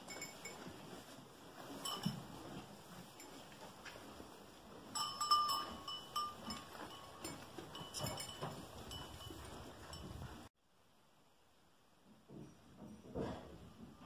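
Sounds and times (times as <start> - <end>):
animals rustling in straw: 0.0 - 10.5
light clinks and knocks: 5.0 - 10.4.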